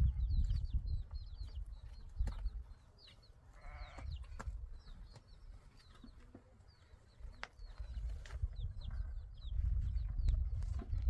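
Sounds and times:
small birds chirping: 0:00.0 - 0:11.0
sheep or goat bleating: 0:03.5 - 0:04.1.

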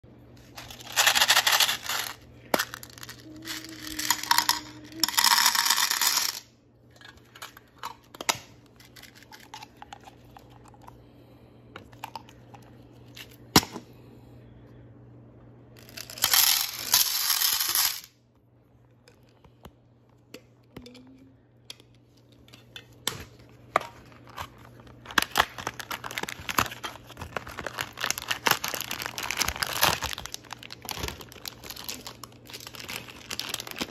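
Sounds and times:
candies rattling on plastic: 0:00.4 - 0:10.8, 0:15.8 - 0:18.2, 0:23.8 - 0:33.9
packaging crinkling: 0:23.8 - 0:33.9.

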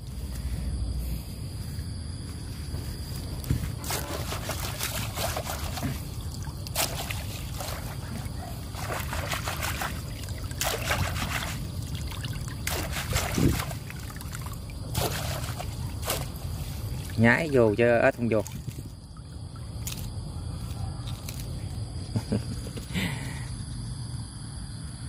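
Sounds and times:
water splashing and trickling: 0:02.4 - 0:21.8.

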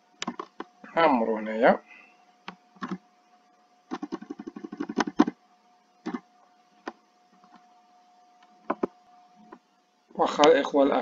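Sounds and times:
faint steady hum: 0:00.0 - 0:11.0
keyboard typing: 0:00.2 - 0:00.7, 0:02.4 - 0:03.0, 0:03.9 - 0:05.4, 0:06.0 - 0:06.2.

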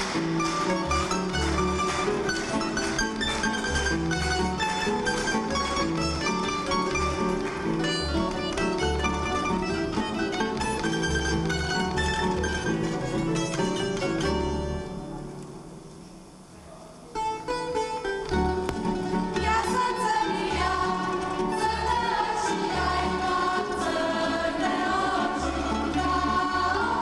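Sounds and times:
string band playing folk tune: 0:00.0 - 0:15.9, 0:17.1 - 0:27.0
group of voices singing: 0:19.4 - 0:27.0.

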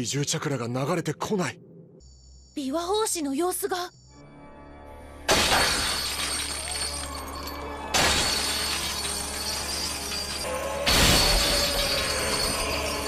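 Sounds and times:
background music: 0:02.6 - 0:13.0
chains shattering crash: 0:05.3 - 0:13.0
long glassy ringing: 0:08.3 - 0:13.0.

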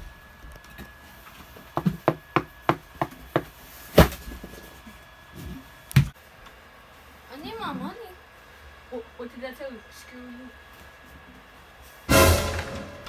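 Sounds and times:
loud bang on door: 0:12.1 - 0:13.0.

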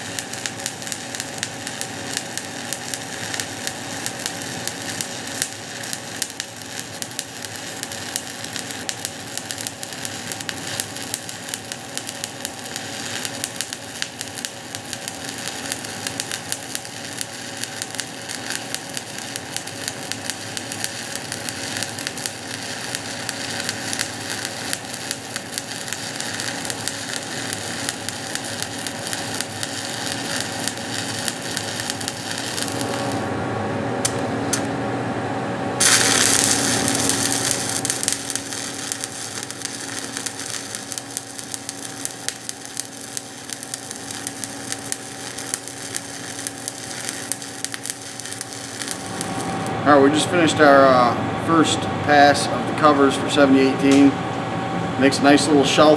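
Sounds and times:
welding arc crackling: 0:00.0 - 0:33.3, 0:34.0 - 0:34.7, 0:35.8 - 0:51.1.

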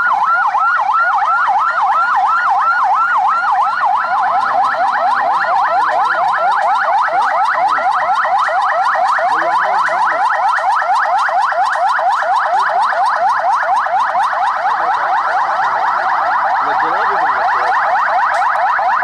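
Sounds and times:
police siren yelping: 0:00.0 - 0:19.0.

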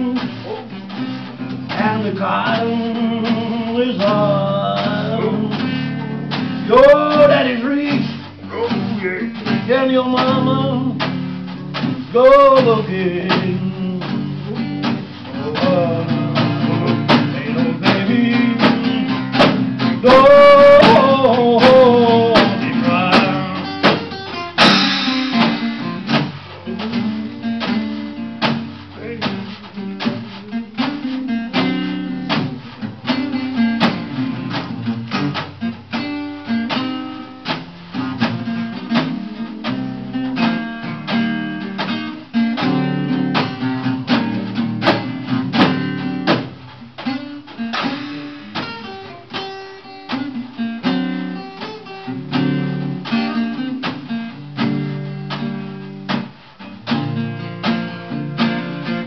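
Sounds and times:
acoustic guitar strummed and picked: 0:00.0 - 0:59.0
drum and cymbal with sticks: 0:22.2 - 0:32.9, 0:47.8 - 0:48.8.

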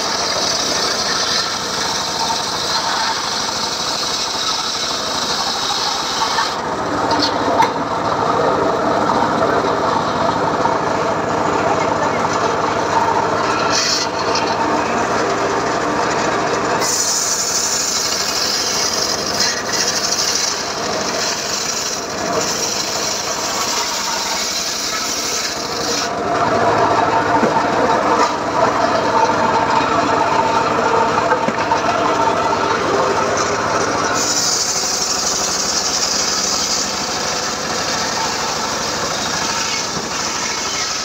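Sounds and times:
saw blade cutting log hiss: 0:00.0 - 0:06.6, 0:16.8 - 0:26.2, 0:33.9 - 0:41.0
circular sawmill machine drone: 0:00.0 - 0:41.0.

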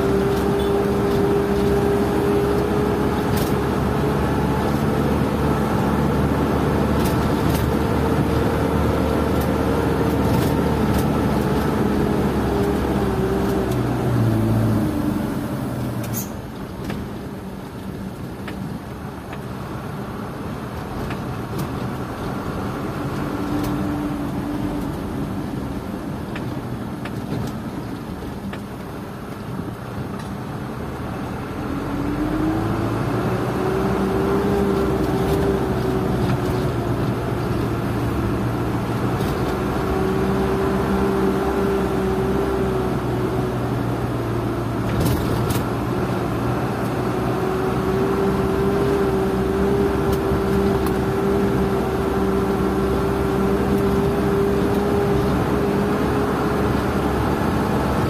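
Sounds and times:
rising engine whine: 0:00.0 - 0:16.4, 0:30.9 - 0:58.0.

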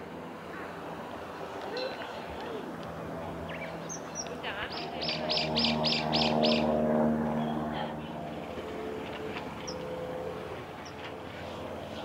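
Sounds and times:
passing vehicle engine hum: 0:00.0 - 0:12.0
bird chirping: 0:03.5 - 0:06.7.

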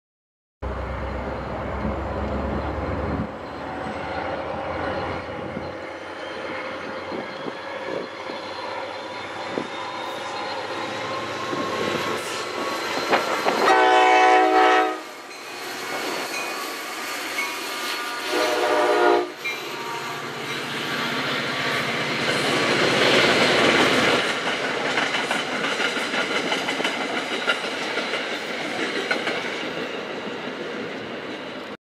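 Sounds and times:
train running past: 0:00.6 - 0:31.8
train horn blasts: 0:13.4 - 0:15.3, 0:18.1 - 0:20.4.

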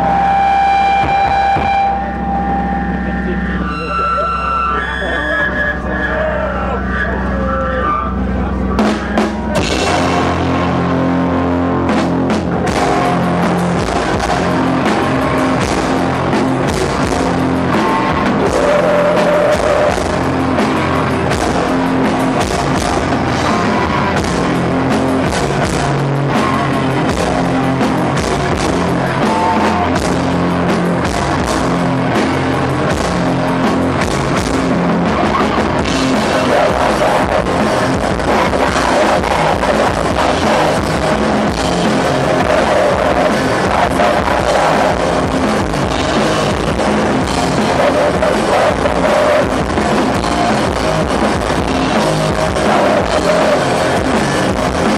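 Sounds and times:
heavy metal band playing live: 0:00.0 - 0:54.9
drum hits: 0:01.0 - 0:01.9.

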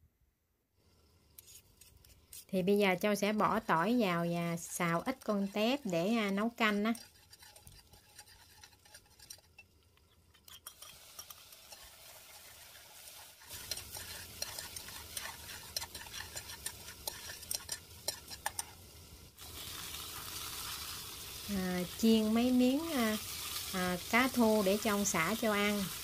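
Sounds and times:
garlic sizzling in oil: 0:00.9 - 0:26.0
metal spoon scraping a pot: 0:01.4 - 0:18.8.

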